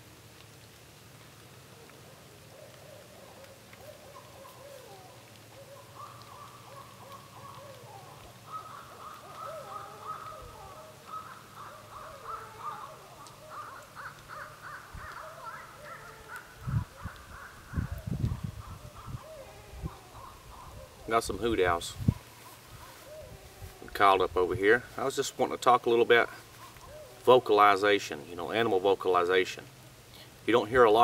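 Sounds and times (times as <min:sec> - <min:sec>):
hand-cupped owl call: 0:01.8 - 0:24.0, 0:26.3 - 0:27.3
owls hooting and caterwauling: 0:01.8 - 0:24.0, 0:26.4 - 0:27.3.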